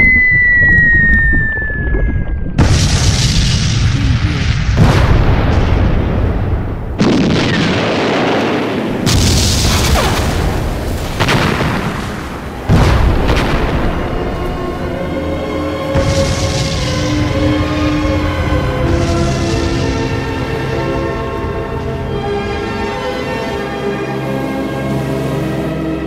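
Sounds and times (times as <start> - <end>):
falling whistle: 0.0 - 2.6
heavy rumbling: 0.0 - 25.6
explosion blasts: 1.6 - 15.0, 15.9 - 22.7.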